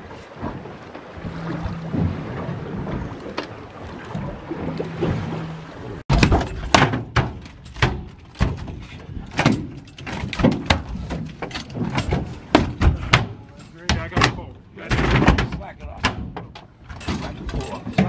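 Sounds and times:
boat noise: 0:00.0 - 0:18.0
wind: 0:00.0 - 0:18.0.

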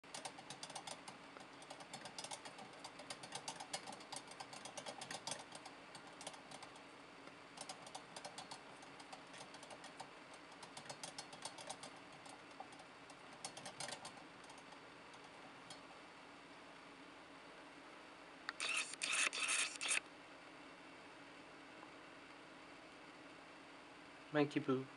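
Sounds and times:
hamster wheel rattling and clicking: 0:00.0 - 0:06.9, 0:07.5 - 0:15.9.

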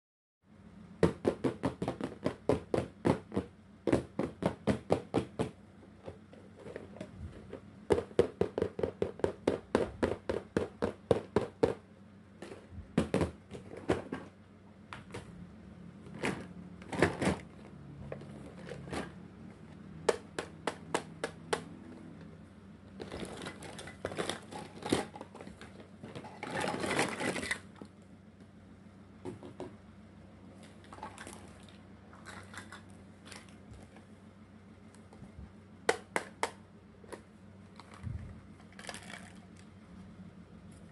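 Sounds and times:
plastic knocking on plastic: 0:01.0 - 0:11.8, 0:12.4 - 0:14.3, 0:29.2 - 0:29.8
plastic pieces rattling: 0:23.0 - 0:27.7.

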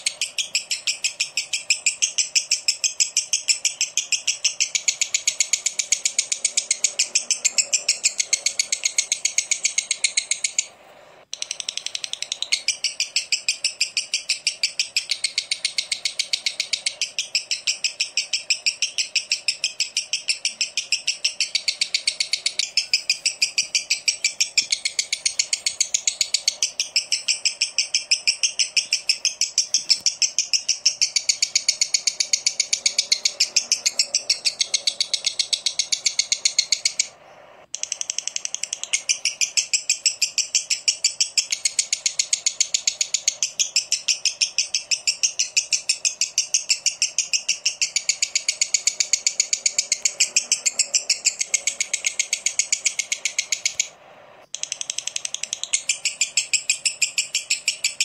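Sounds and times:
lovebird chattering trill: 0:00.0 - 0:58.0.

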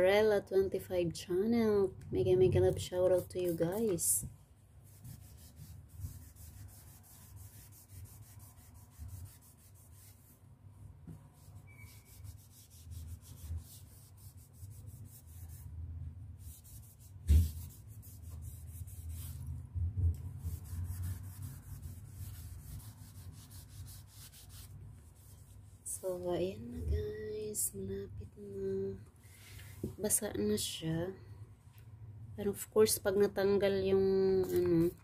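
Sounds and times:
cloth rubbing on wall: 0:04.8 - 0:10.4, 0:11.4 - 0:15.7, 0:16.4 - 0:19.6, 0:20.3 - 0:26.0.

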